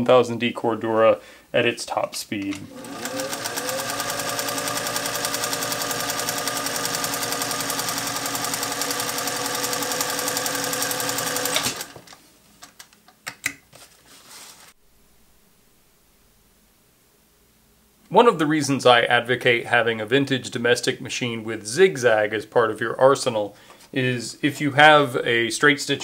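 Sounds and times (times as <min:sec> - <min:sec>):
sewing machine running: 0:02.6 - 0:12.1.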